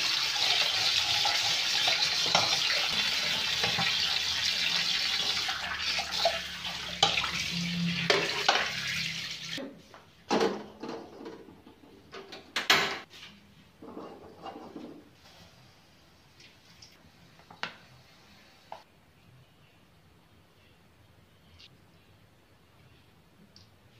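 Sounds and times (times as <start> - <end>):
tap water running into a sink: 0.0 - 9.6.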